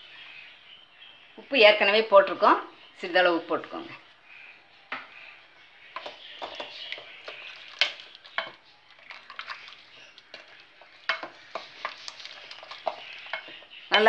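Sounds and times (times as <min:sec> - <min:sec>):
spoon stirring curry in metal pot: 0:05.2 - 0:14.0.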